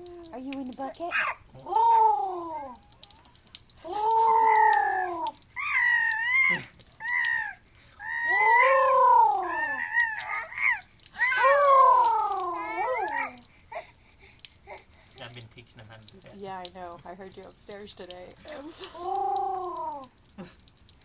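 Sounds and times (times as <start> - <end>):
baby babbling: 1.1 - 2.9, 3.8 - 13.9, 18.5 - 20.1.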